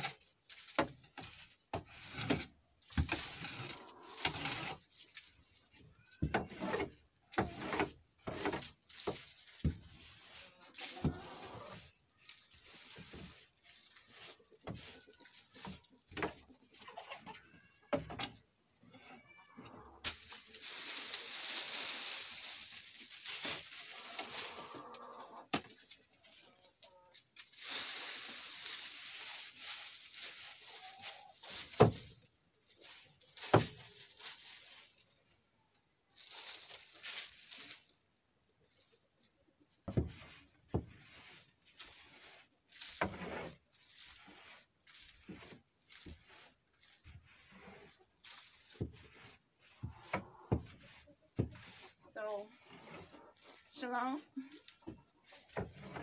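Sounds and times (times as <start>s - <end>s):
brush sweeping wooden box: 0.0s - 18.5s, 20.0s - 35.4s, 36.1s - 56.0s
chickens clucking: 15.2s - 17.9s, 20.7s - 25.5s, 49.8s - 52.0s.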